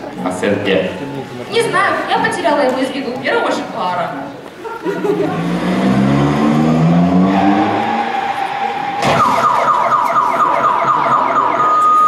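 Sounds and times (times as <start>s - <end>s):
car alarm steady tone: 8.6s - 12.0s
car alarm warbling chirp: 9.0s - 12.0s.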